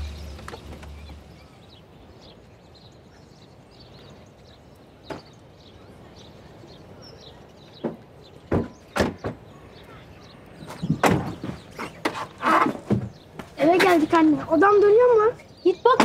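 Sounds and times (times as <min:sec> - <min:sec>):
car engine rumble: 0:00.0 - 0:02.0
small birds chirping: 0:00.0 - 0:16.0.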